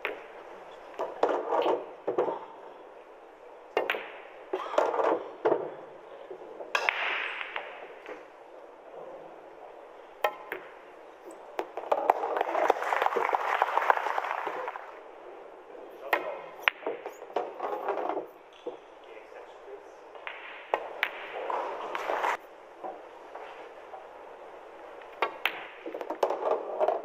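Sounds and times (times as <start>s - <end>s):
pool balls clacking: 0.0s - 2.6s, 3.7s - 8.3s, 10.2s - 15.0s, 16.0s - 19.0s, 20.2s - 23.0s, 25.0s - 27.0s
soft background noise: 0.0s - 27.0s.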